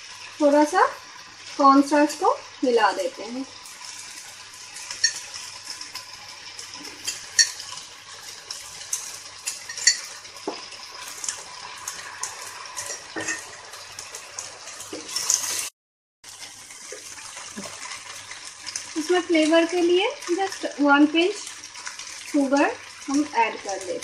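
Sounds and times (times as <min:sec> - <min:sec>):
hot sauce hissing: 0:00.0 - 0:15.7.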